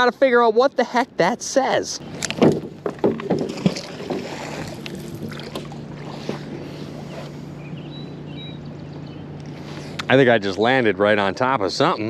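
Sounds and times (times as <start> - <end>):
faint water: 0.0 - 12.0
faint wind: 0.0 - 12.0
steady low hum: 0.0 - 12.0
rope knocking and rustling: 2.2 - 6.4.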